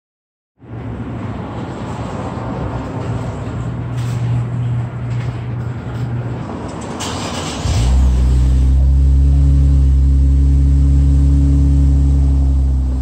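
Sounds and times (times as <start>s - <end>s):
car engine cranking: 6.7s - 10.7s
car engine idling: 7.1s - 13.0s.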